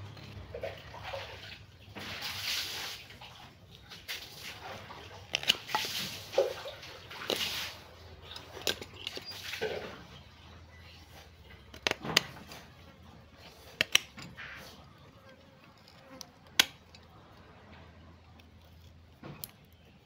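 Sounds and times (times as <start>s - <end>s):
dry roots rustling: 0.0s - 20.0s
pruning shears snipping: 13.5s - 14.7s, 16.0s - 17.0s.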